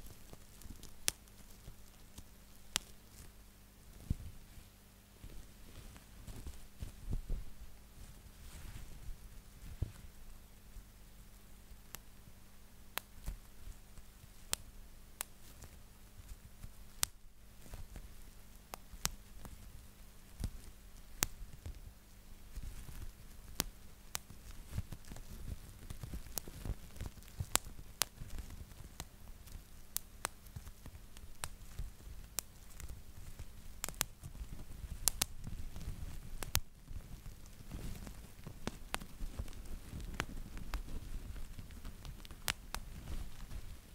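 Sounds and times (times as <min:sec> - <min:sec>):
bubble wrap popping: 0:00.0 - 0:04.5, 0:05.2 - 0:10.2, 0:12.9 - 0:43.9
plastic sheet crinkling: 0:30.5 - 0:43.9.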